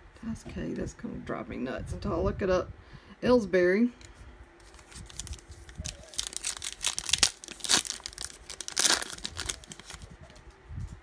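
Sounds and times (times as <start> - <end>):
foil wrapper tearing and crinkling: 4.6 - 10.2.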